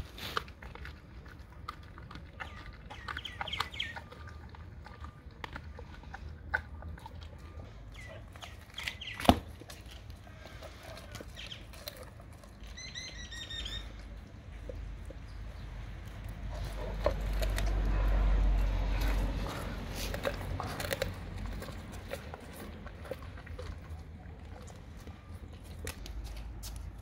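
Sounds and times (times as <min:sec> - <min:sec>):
dog chewing fish bones: 0:00.0 - 0:27.0
birds chirping: 0:02.2 - 0:05.4, 0:06.0 - 0:17.4
sharp bone crack: 0:08.8 - 0:09.8.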